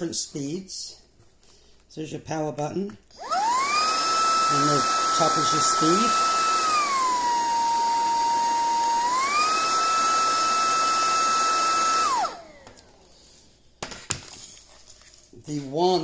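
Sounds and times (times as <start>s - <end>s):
vacuum motor whine: 3.2s - 13.1s.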